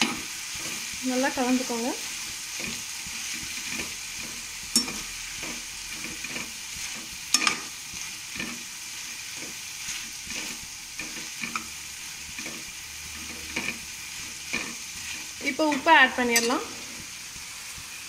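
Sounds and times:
vegetables sizzling in oil: 0.0s - 18.0s
metal spatula scraping pan: 2.5s - 17.1s.

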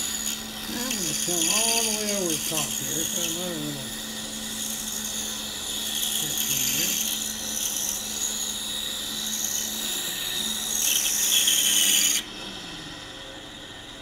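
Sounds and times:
bandsaw blade hissing in wood: 0.0s - 3.9s, 6.0s - 7.2s
bandsaw motor hum: 0.0s - 14.0s.

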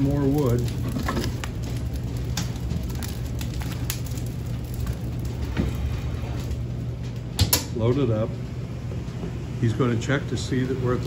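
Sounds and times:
steady low hum: 0.0s - 11.0s
wood fire crackling: 0.0s - 11.0s.

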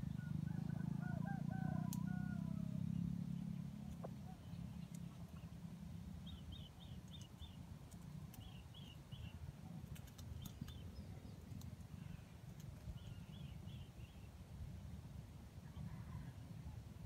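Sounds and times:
small bird calls: 0.0s - 14.3s
low steady rumble: 0.0s - 17.0s
sharp clicks: 7.0s - 8.5s, 9.8s - 10.8s.

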